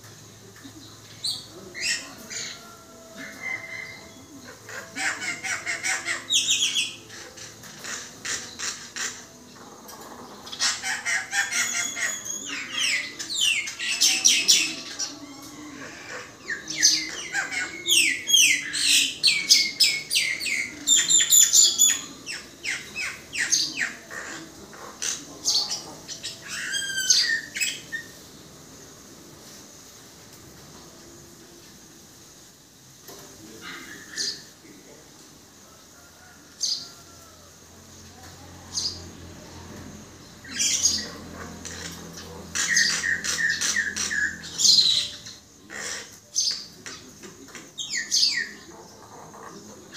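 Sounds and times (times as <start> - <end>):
myna chattering and whistling: 0.4 - 9.6, 10.4 - 28.2, 40.3 - 49.9.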